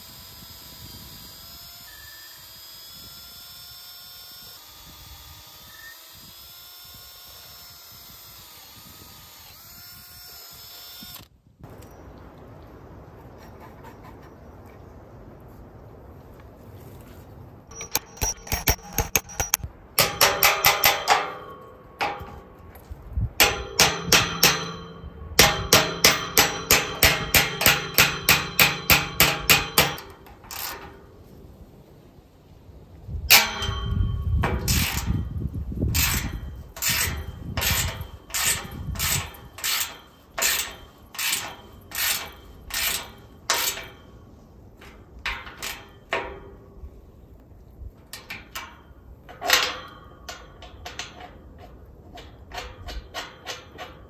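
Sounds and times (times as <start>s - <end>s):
wrench clicking with metal ringing: 17.7s - 22.4s, 23.4s - 30.9s.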